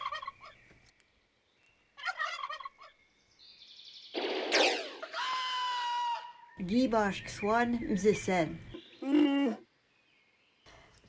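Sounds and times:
turkey gobbling: 0.0s - 0.6s, 2.0s - 3.0s, 4.9s - 6.3s.

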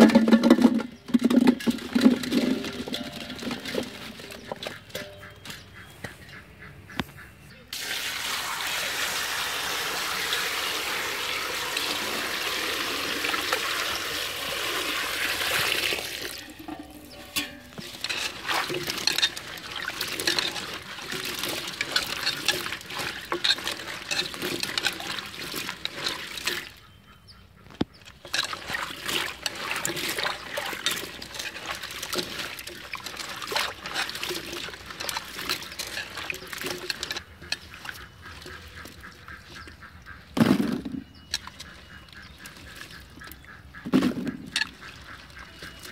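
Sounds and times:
water pouring into metal pot: 7.8s - 26.8s, 28.1s - 38.6s
hands splashing in water: 17.2s - 26.8s, 28.1s - 39.7s.

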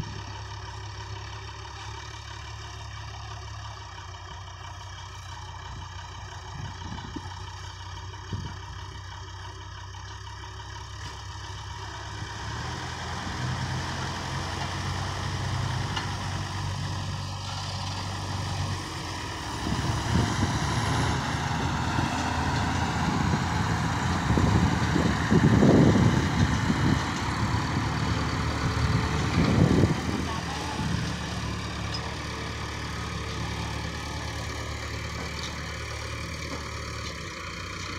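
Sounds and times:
diesel engines revving: 0.0s - 37.9s.

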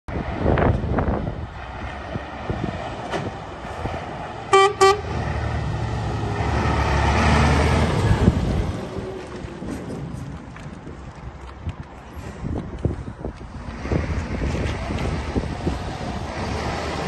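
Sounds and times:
diesel truck engine running: 0.3s - 11.4s, 12.0s - 17.0s
truck horn toots: 4.5s - 5.2s.

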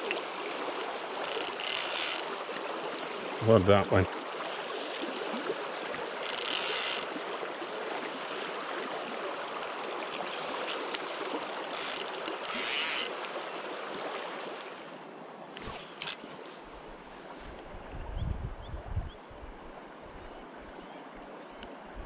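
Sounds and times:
river water rushing: 0.0s - 15.0s
fly reel click buzzing: 1.2s - 2.2s, 6.2s - 7.1s, 10.6s - 11.0s, 11.7s - 13.1s, 16.0s - 16.2s.

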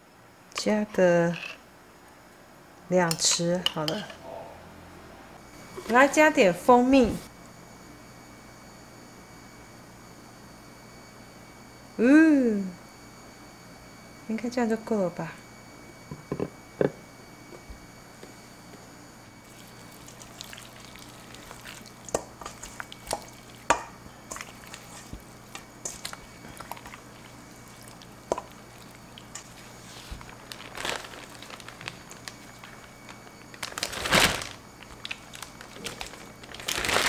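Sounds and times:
hands squelching meat in marinade: 19.4s - 23.6s, 24.2s - 32.8s
plastic bag rustling: 24.4s - 37.0s.

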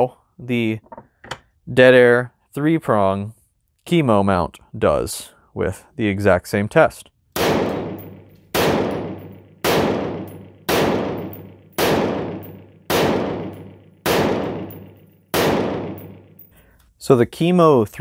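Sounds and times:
rifle firing single shots: 7.4s - 16.5s.

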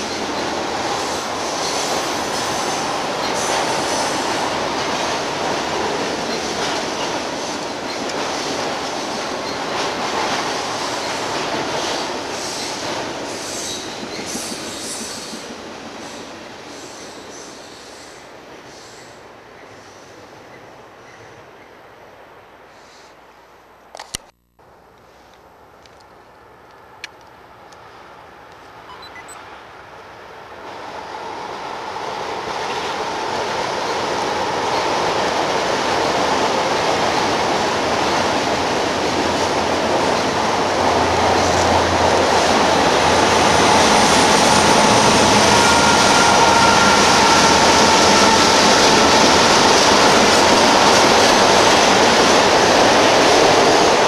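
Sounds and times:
wheels squealing on rails: 0.0s - 5.0s, 5.8s - 21.4s, 39.2s - 54.0s
freight train rumble: 0.0s - 22.7s, 26.4s - 54.0s.

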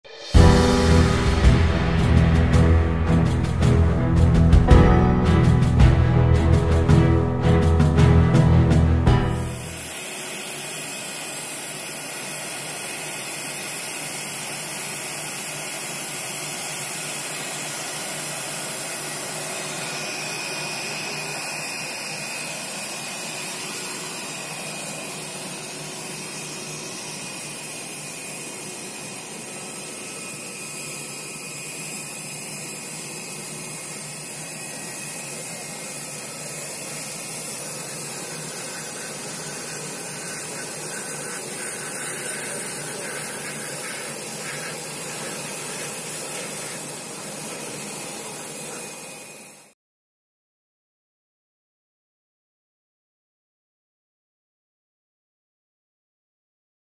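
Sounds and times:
jet engines whining and hissing: 0.0s - 1.1s, 9.4s - 49.7s.

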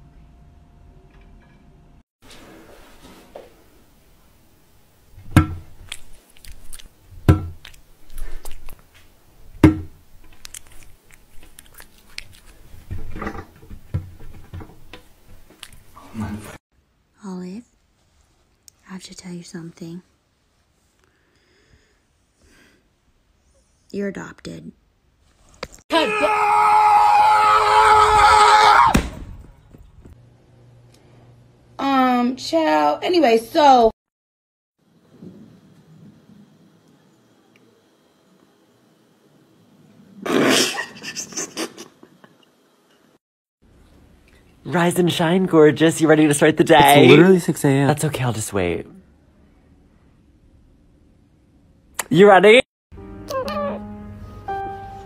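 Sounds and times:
sharp knocks on glass: 5.3s - 5.7s, 7.2s - 7.6s, 9.6s - 10.0s
chewing: 5.8s - 7.0s, 7.6s - 8.9s, 10.3s - 12.9s
long wailing cry: 25.9s - 28.9s.

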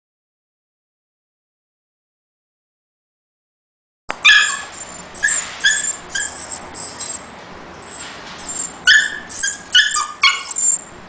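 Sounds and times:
small dog yipping and whining: 4.2s - 10.9s.

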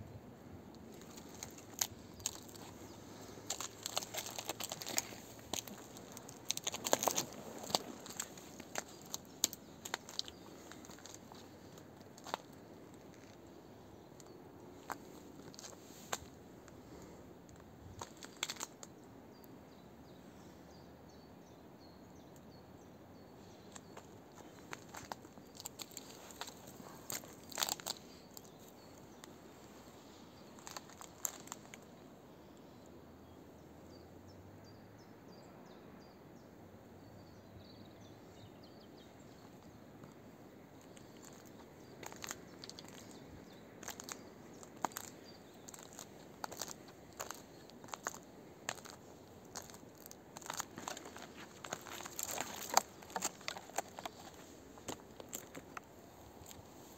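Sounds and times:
quiet forest background: 0.0s - 56.9s
footsteps snapping dry twigs: 0.8s - 13.5s, 14.2s - 16.8s, 17.5s - 18.9s, 23.7s - 31.9s, 40.8s - 56.8s.

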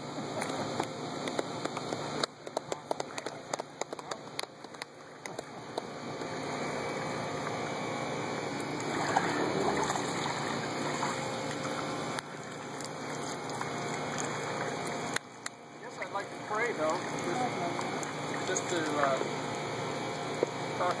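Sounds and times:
water sloshing and splashing: 8.6s - 20.6s
water running off body: 8.8s - 15.2s.

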